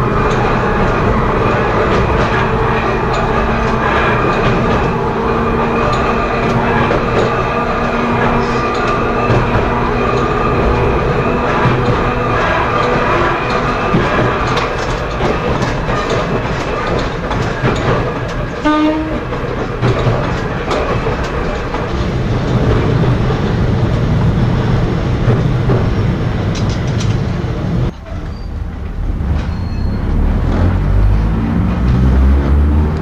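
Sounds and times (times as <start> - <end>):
rail joint clicks: 0.0 - 33.0
railcar rumbling: 0.0 - 33.0
train horn blast: 18.6 - 19.3.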